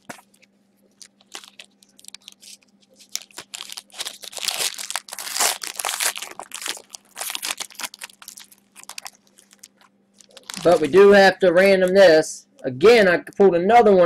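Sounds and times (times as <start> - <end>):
foil wrapper crinkling: 0.0 - 11.2.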